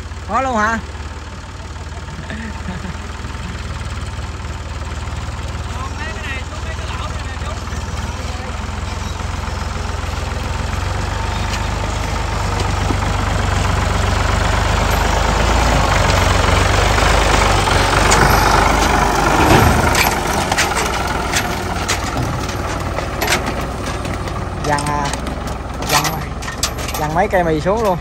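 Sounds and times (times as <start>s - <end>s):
tractor engine driving past: 0.0s - 28.0s
sharp clicks and knocks: 14.6s - 28.0s.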